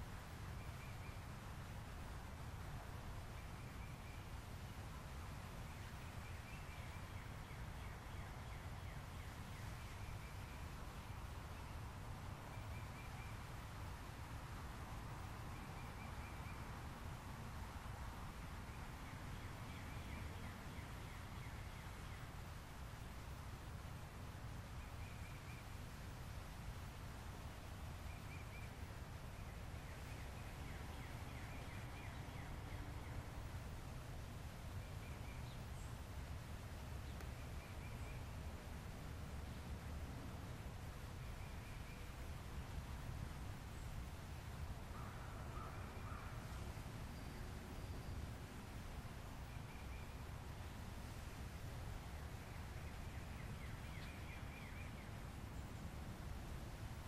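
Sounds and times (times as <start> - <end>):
low rumble and hiss: 0.0 - 57.0
faint bird chirps: 0.5 - 1.3, 12.4 - 13.5, 44.9 - 48.3.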